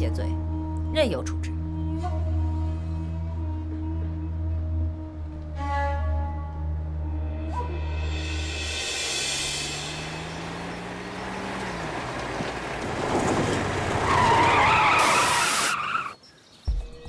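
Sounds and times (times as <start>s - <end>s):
truck driving on dirt road: 1.4s - 16.3s
skidding squeal: 9.0s - 16.2s
tyres grinding through gravel: 9.7s - 16.2s.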